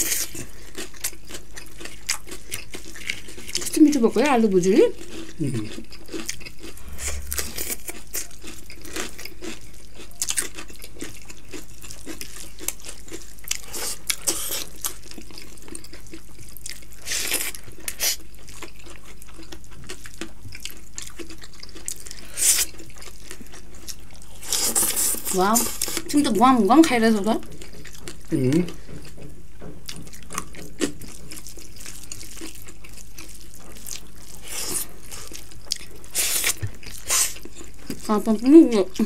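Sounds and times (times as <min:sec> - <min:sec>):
wet chewing and smacking: 0:00.0 - 0:04.0, 0:04.9 - 0:39.0.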